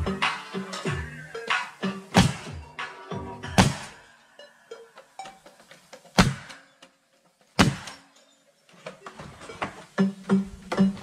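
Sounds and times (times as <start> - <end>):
nail gun firing: 2.2 - 2.5, 3.6 - 4.0, 6.2 - 6.6, 7.6 - 8.0.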